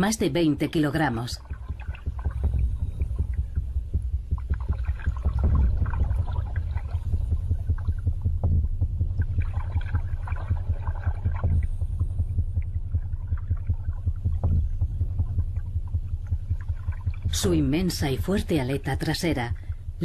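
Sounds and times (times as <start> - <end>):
low rumble of moving water: 0.0 - 20.0
small underwater clicks and crackles: 1.4 - 17.4.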